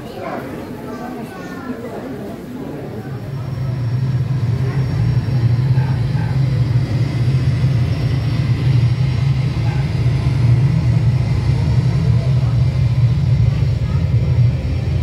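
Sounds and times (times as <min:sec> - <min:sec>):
jet engine rumble over loudspeakers: 0:00.0 - 0:15.0.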